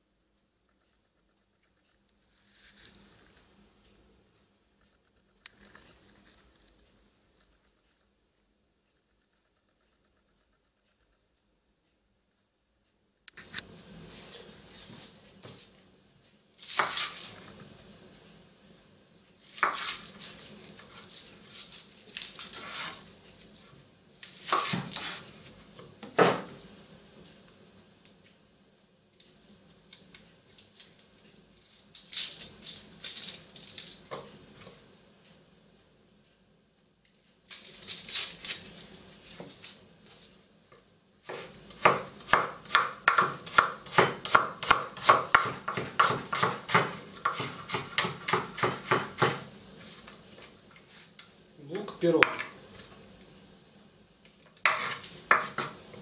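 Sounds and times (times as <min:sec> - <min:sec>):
knife cutting on wooden board: 0:16.6 - 0:17.3, 0:54.7 - 0:55.8
rapid knife chopping: 0:41.3 - 0:49.5.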